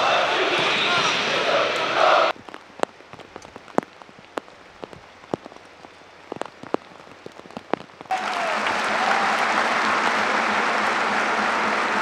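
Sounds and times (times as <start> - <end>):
raindrops ticking on hard surface: 2.3 - 8.9.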